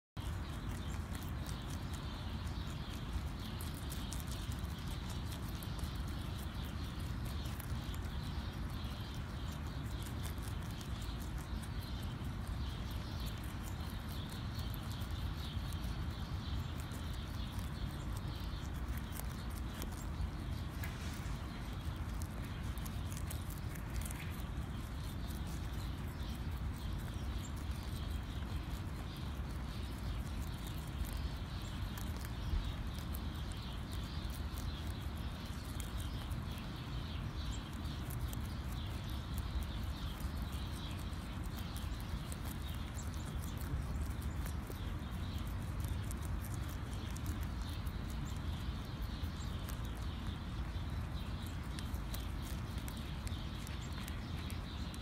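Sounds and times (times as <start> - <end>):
rabbits chewing: 0.1 - 55.0
steady low rumble: 0.1 - 55.0.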